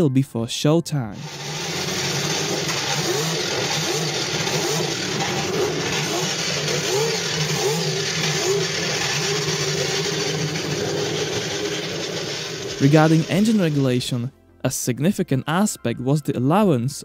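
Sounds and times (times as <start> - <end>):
racing car engines revving: 1.2 - 14.0.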